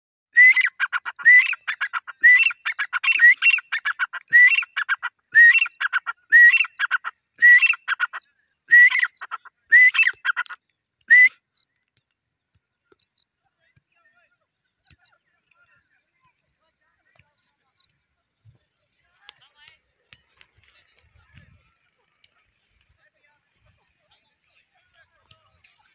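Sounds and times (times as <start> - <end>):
francolin calling: 0.4 - 10.6.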